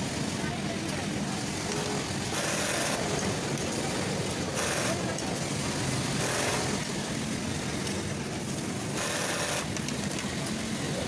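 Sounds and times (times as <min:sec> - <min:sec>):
factory floor noise: 0:00.0 - 0:11.0
sewing machine stitching: 0:01.8 - 0:03.2, 0:04.6 - 0:05.2, 0:06.2 - 0:06.9, 0:09.0 - 0:09.7.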